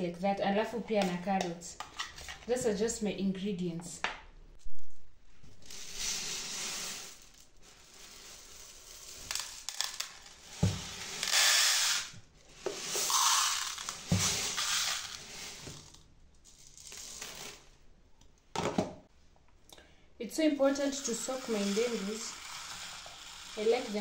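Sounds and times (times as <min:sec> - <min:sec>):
dry beans pouring into plastic box: 0:05.6 - 0:17.6, 0:20.8 - 0:24.0.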